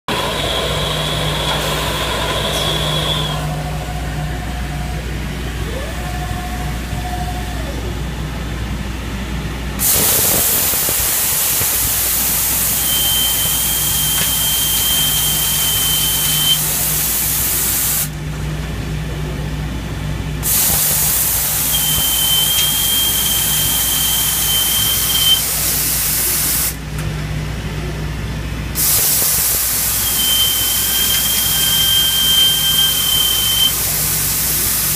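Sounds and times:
motors whining: 0.1 - 8.0, 9.8 - 17.6, 20.5 - 26.3, 28.8 - 34.9
machine hum: 0.1 - 26.1
high steady whine: 0.1 - 34.9
loud spraying hiss: 9.8 - 18.1, 20.4 - 26.8, 28.8 - 34.9.

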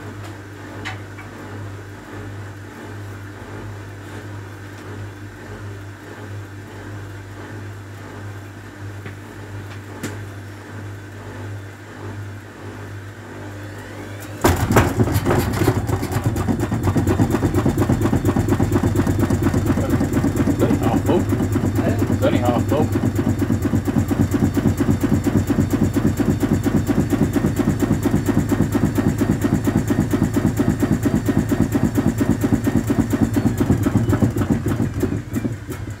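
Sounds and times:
washing machine humming: 0.0 - 36.0
washing machine spinning: 0.0 - 36.0
heavy knocking of unbalanced drum: 14.4 - 36.0.

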